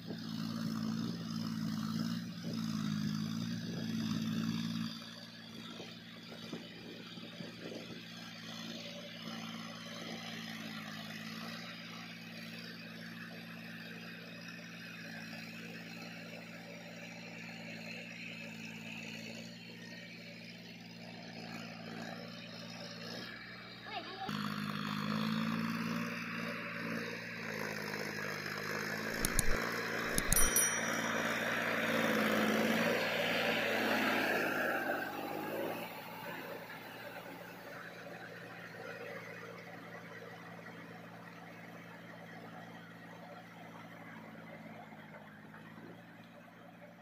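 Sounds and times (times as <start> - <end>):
tractor diesel engine running: 18.3 - 47.0.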